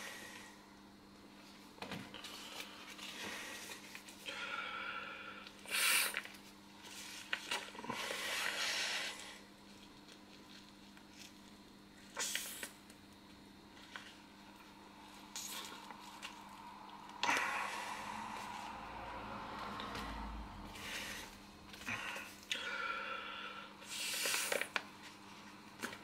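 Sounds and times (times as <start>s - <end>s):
sharp intakes of breath: 17.2s - 24.7s.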